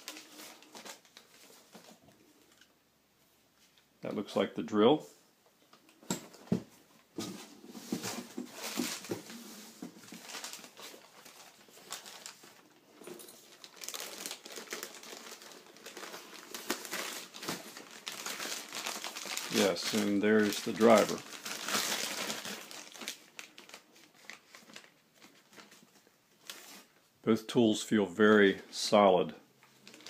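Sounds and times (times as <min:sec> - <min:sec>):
plastic bags crinkling: 0:00.0 - 0:02.7, 0:07.8 - 0:26.8, 0:29.6 - 0:30.0.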